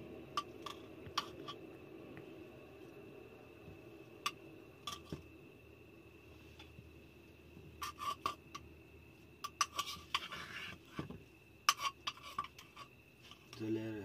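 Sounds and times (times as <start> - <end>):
spoon scrape: 7.8 - 8.6, 9.4 - 11.0, 11.7 - 12.9.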